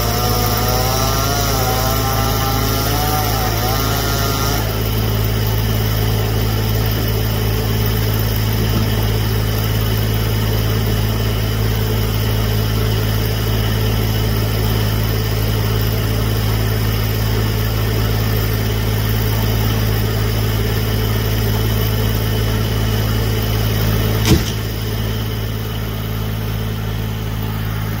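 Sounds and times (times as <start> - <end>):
truck engine idling: 0.0 - 28.0
sharp knock: 24.2 - 24.7.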